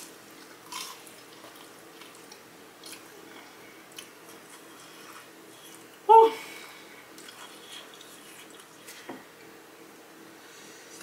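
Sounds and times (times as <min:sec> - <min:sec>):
soft chewing: 0:00.0 - 0:06.0, 0:06.6 - 0:09.5
crunchy bite: 0:00.6 - 0:01.2.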